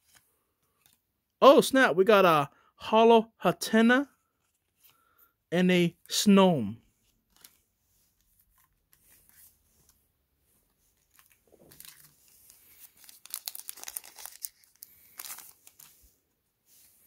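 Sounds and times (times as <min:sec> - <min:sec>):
plastic wrapper crinkling: 0:10.9 - 0:16.1.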